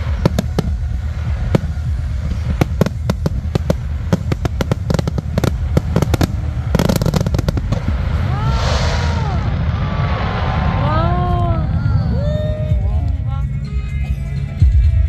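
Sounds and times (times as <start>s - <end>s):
fireworks cracking and banging: 0.0s - 11.5s
low rumble: 0.0s - 13.6s.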